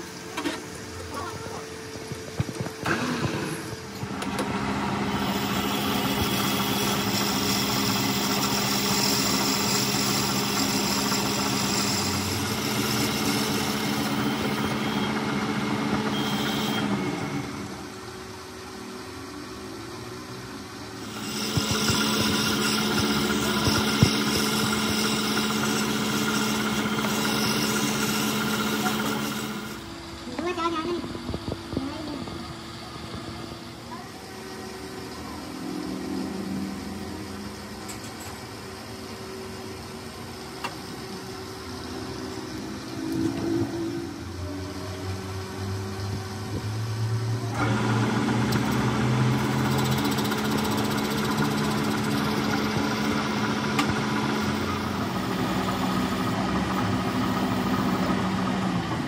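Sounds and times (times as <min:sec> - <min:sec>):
metal lathe humming: 0:00.0 - 0:46.6, 0:47.2 - 0:59.0
cutting tool scraping metal: 0:05.1 - 0:15.1, 0:21.0 - 0:29.9.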